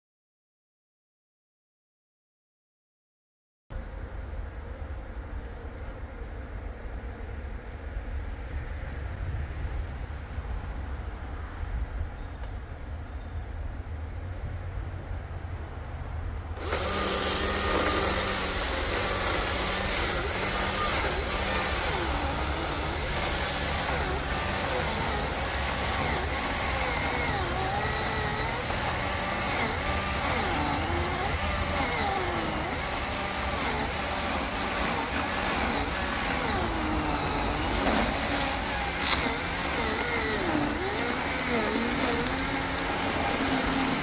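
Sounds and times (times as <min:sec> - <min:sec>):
chainsaw motor whine cutting wood: 0:16.6 - 0:44.0.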